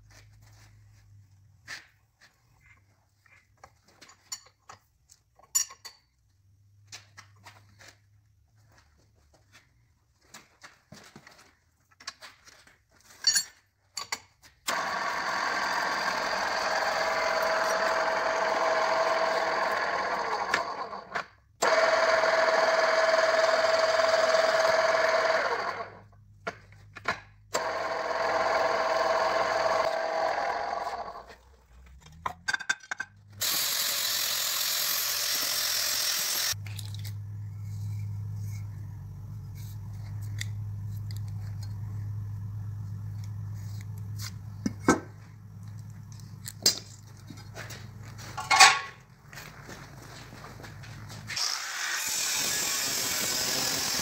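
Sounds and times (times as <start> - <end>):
drill hole saw cutting steel: 14.7 - 26.0, 27.5 - 31.2, 33.4 - 36.6, 51.3 - 54.0
low steady hum: 36.6 - 51.3.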